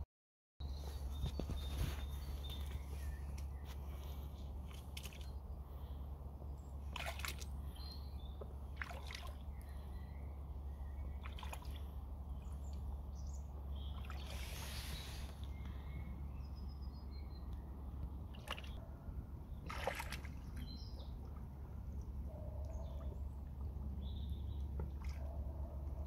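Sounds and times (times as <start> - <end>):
birds singing: 0.6 - 26.0
steady low rumble: 0.6 - 26.0
boots sloshing through water: 0.9 - 5.5, 6.8 - 7.7, 8.4 - 9.6, 11.0 - 12.9, 13.9 - 15.4, 18.3 - 18.8, 19.6 - 21.7, 22.8 - 26.0.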